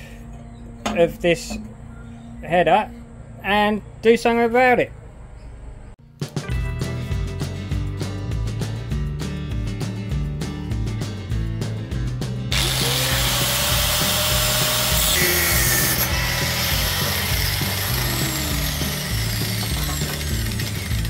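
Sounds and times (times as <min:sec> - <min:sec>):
background music: 0:06.0 - 0:21.0
angle grinder cutting metal: 0:12.5 - 0:21.0.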